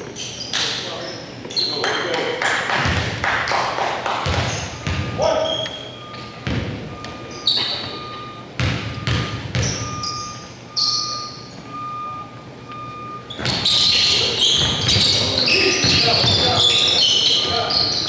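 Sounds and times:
shoes squeaking on court: 0:00.0 - 0:03.1, 0:04.2 - 0:12.1, 0:12.7 - 0:18.0
crowd noise with voices: 0:00.0 - 0:18.0
ball bouncing: 0:02.7 - 0:10.3, 0:13.4 - 0:16.6.

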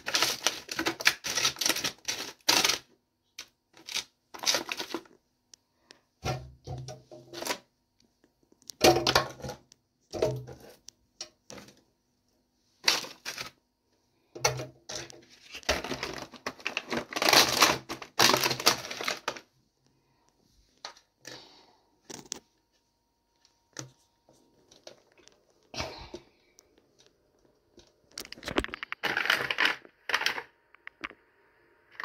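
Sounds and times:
plastic punnet crinkling: 0:00.0 - 0:05.2, 0:12.8 - 0:13.6, 0:14.9 - 0:19.5, 0:26.8 - 0:30.5.

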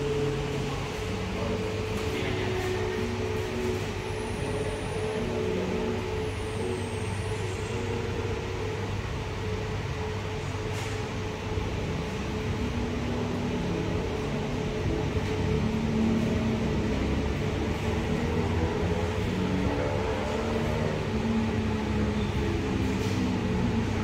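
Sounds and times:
ventilation and machinery hum: 0:00.0 - 0:24.0.

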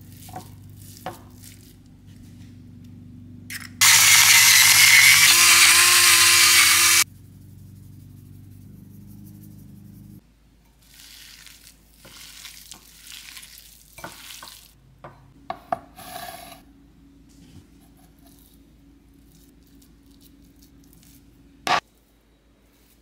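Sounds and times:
hands squishing raw meat: 0:10.8 - 0:14.7.

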